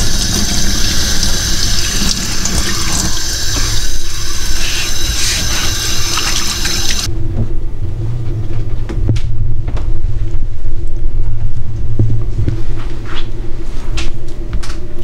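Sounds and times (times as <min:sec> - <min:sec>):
tap water splashing in sink: 0:00.0 - 0:07.1
low hum: 0:00.0 - 0:15.0.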